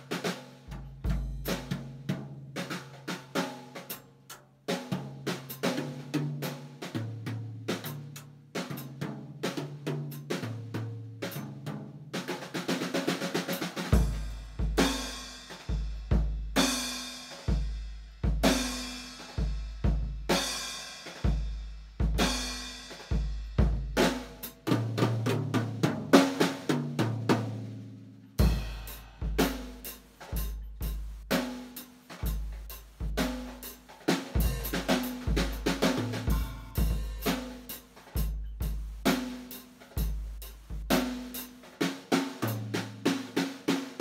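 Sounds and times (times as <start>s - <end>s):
heavy kick drum beats: 0.0s - 4.0s, 4.7s - 27.8s, 28.4s - 44.0s
snare and tom hits: 28.4s - 44.0s.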